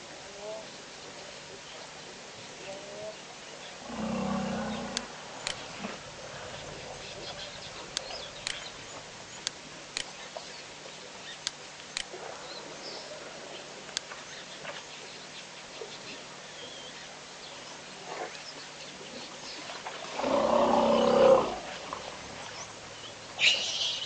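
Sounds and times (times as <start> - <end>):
outdoor background noise: 0.0 - 24.0
animal low call: 3.8 - 9.0, 20.1 - 21.9
sharp clicks: 4.9 - 5.6, 7.9 - 8.7, 11.4 - 12.1.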